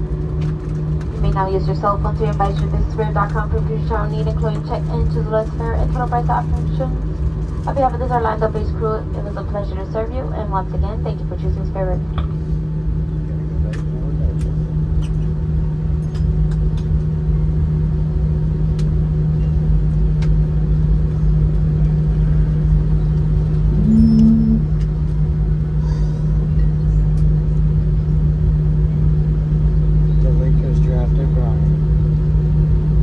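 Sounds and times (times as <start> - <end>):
aircraft cabin rumble and hum: 0.0 - 33.0.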